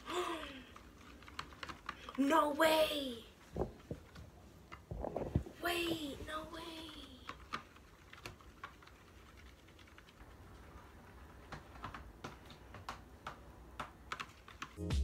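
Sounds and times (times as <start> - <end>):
plastic fork stirring slime: 3.4 - 10.3.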